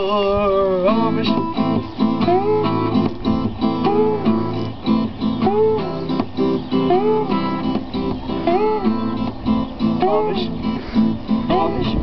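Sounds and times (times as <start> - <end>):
acoustic guitar: 0.0 - 12.0.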